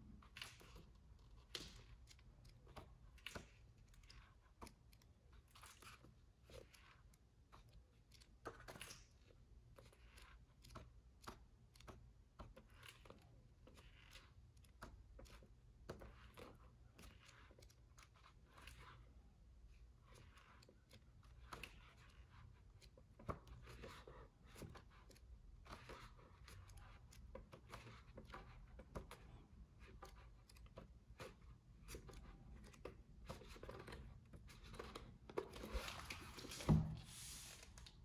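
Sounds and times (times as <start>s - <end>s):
book pages turning: 0.2s - 19.1s, 20.0s - 38.0s
book closing thump: 36.4s - 37.4s.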